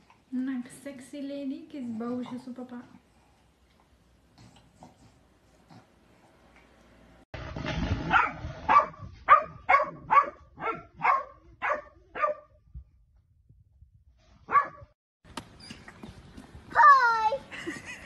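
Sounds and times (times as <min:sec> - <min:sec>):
dog barking: 0:08.1 - 0:12.5, 0:14.5 - 0:14.9.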